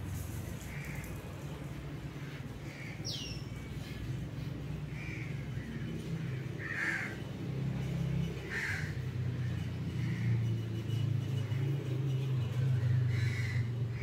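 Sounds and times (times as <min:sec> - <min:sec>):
crow cawing: 0:00.7 - 0:01.2, 0:04.9 - 0:07.3, 0:08.4 - 0:10.4, 0:12.8 - 0:14.0.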